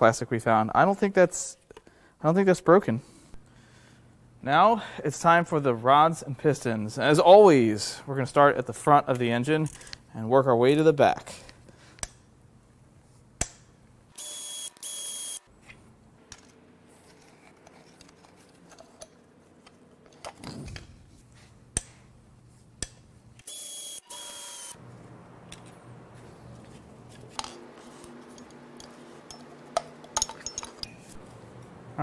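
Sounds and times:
power tool motor whining: 14.2 - 15.4, 23.4 - 24.8
metal tools clicking and clinking: 28.3 - 31.2.

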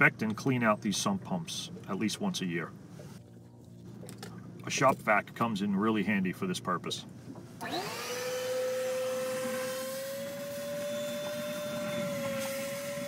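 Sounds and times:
shop vacuum motor whine: 7.6 - 13.0.

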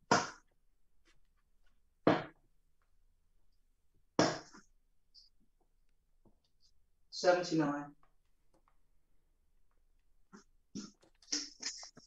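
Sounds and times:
darts striking dartboard: 2.1 - 2.3, 4.2 - 4.6.

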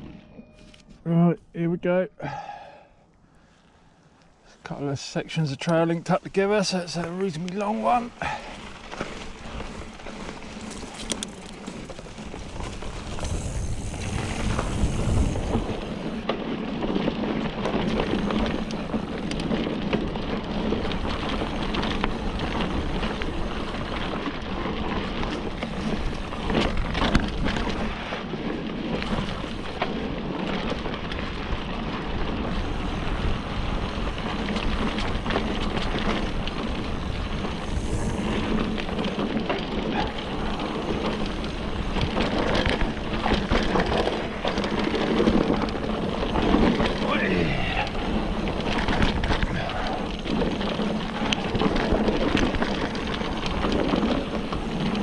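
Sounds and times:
tyre noise on dirt: 4.6 - 55.0
bike clicks and rattles: 5.5 - 55.0
wind on microphone: 12.3 - 16.2, 32.3 - 55.0.

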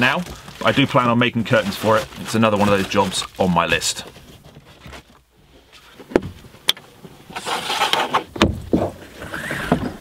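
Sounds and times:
thumps: 6.0 - 10.0.

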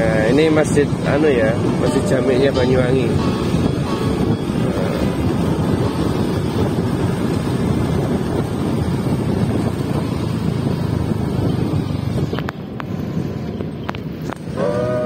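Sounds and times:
road noise: 0.0 - 15.0
wind rushing over microphone: 0.0 - 15.0.

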